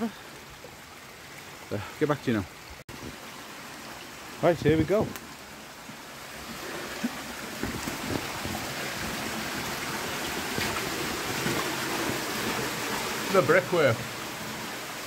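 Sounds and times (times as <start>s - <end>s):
running water rushing: 0.0s - 15.0s
boots splashing through water: 6.6s - 12.8s.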